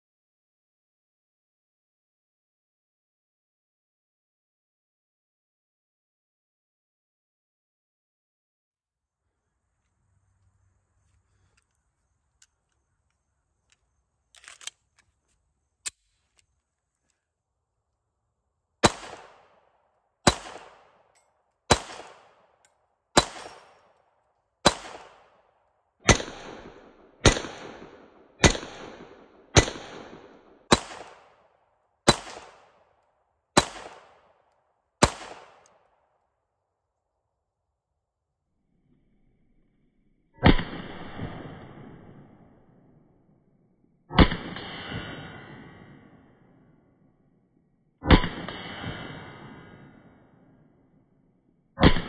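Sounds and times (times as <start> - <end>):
pistol loading clicks: 11.1 - 16.6
pistol shots echoing: 18.8 - 24.0, 24.6 - 25.5, 26.1 - 32.9, 33.6 - 34.4, 35.0 - 35.8.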